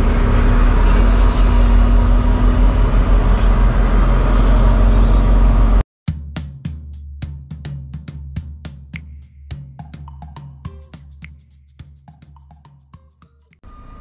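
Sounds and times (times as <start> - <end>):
truck diesel engine running: 0.0 - 5.8
music with drum beat: 6.1 - 13.6.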